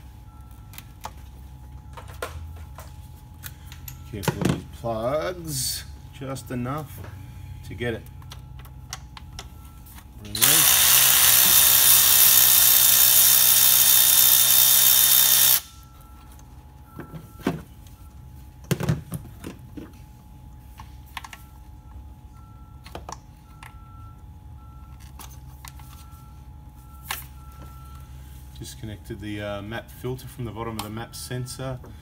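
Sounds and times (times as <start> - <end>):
electric ratchet running: 10.4 - 15.8.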